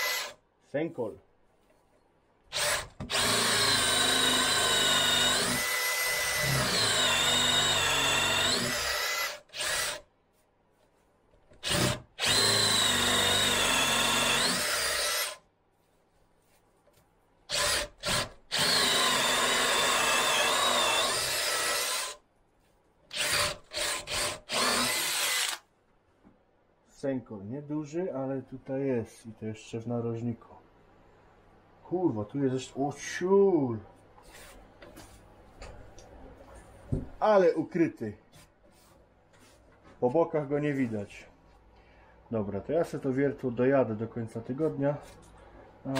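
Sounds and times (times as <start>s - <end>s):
drill boring into wood: 0.0s - 0.4s, 2.5s - 10.0s, 11.6s - 15.4s, 17.5s - 22.2s, 23.1s - 25.6s.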